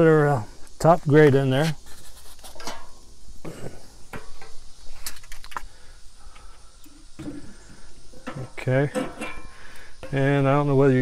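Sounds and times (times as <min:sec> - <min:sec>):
metal grate clanking: 0:02.6 - 0:03.0, 0:08.1 - 0:10.6.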